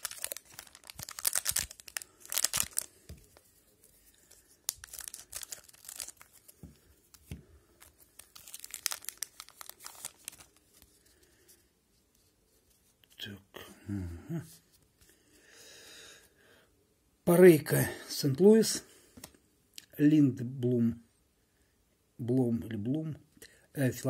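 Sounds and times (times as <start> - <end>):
plastic wrapper tearing and crinkling: 0.0 - 3.6, 4.3 - 11.0.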